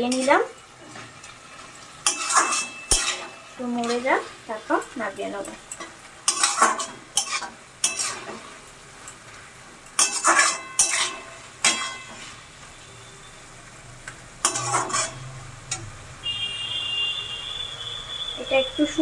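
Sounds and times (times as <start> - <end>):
metal spatula scraping wok: 0.0 - 12.8, 14.4 - 15.9
faint sizzle: 0.0 - 19.0.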